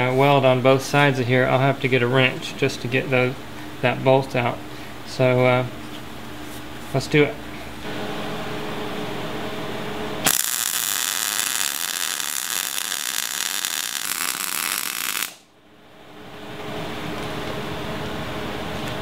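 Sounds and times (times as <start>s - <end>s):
welding arc crackling: 10.2s - 15.5s.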